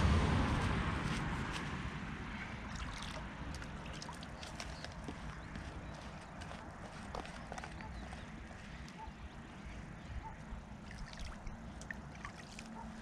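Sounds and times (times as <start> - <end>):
low rumble: 0.0 - 3.9.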